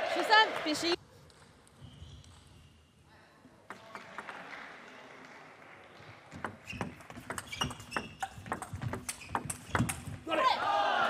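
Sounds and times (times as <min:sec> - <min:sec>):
table tennis ball clicking: 0:06.4 - 0:10.2.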